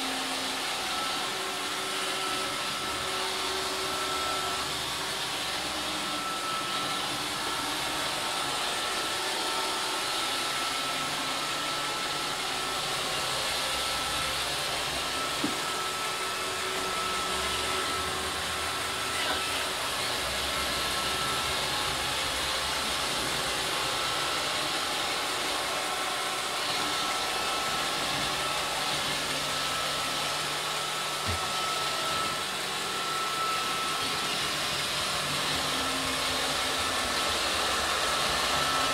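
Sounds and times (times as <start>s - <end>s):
robot vacuum whirring: 0.0s - 38.9s.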